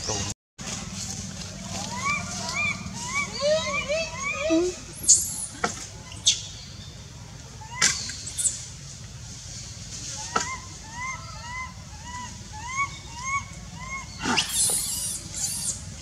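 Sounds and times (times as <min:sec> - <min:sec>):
rustle: 0:00.0 - 0:16.0
animal call: 0:01.7 - 0:05.5, 0:10.2 - 0:15.8.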